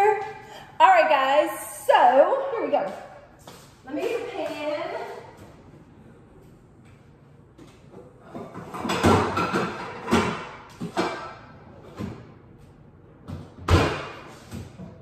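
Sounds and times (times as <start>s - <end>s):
pots and pans clattering: 8.3s - 12.1s.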